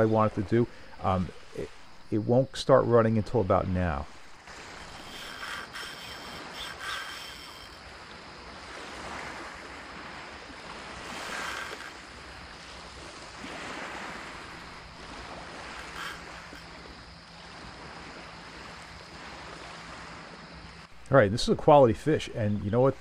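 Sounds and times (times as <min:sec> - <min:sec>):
sea water lapping: 0:00.0 - 0:23.0
wind on microphone: 0:04.4 - 0:20.3.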